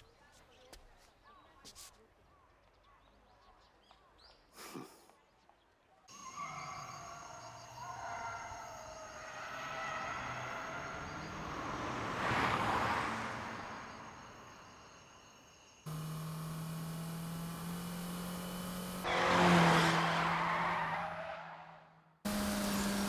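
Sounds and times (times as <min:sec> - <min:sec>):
cars speeding past: 0:06.3 - 0:15.1, 0:15.9 - 0:23.0
steady engine drone: 0:15.9 - 0:19.1, 0:22.3 - 0:23.0.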